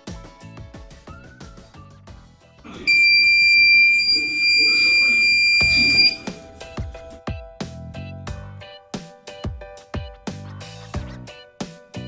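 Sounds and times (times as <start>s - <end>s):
background music: 0.0s - 2.9s, 5.8s - 12.0s
high-pitched buzzer beep: 2.9s - 6.4s.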